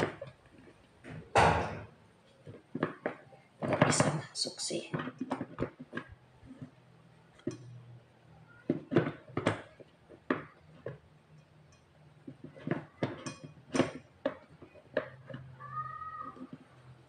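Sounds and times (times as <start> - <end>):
plastic and metal clicks and knocks: 0.0 - 7.8, 8.5 - 15.6.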